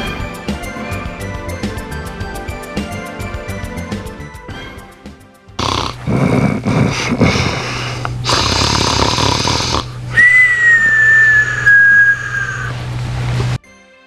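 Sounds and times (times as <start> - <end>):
cartoon snoring: 5.6 - 10.4
falling whistle: 10.1 - 12.8.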